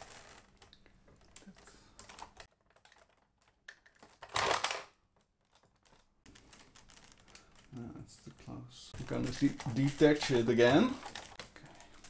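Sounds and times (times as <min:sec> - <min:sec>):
plastic bricks clicking: 0:00.0 - 0:07.7
plastic parts rustling: 0:00.0 - 0:12.0.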